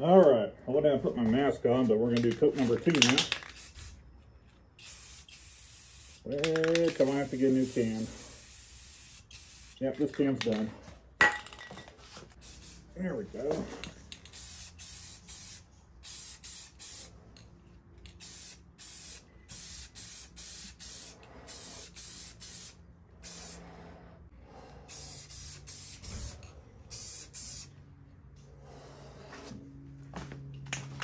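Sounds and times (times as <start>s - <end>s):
spray paint can hissing: 2.6s - 4.0s, 4.8s - 9.8s, 12.4s - 12.9s, 14.1s - 17.1s, 18.0s - 23.6s, 24.9s - 27.7s.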